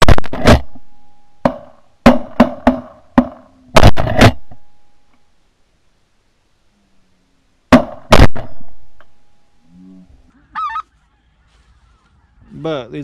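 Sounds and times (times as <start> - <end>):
shotgun blasts: 0.0 - 4.7, 7.7 - 9.0.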